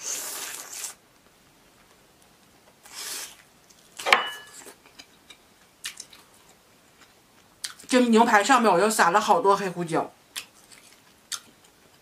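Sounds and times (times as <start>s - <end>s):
quiet chewing: 4.6s - 7.9s, 10.3s - 12.0s.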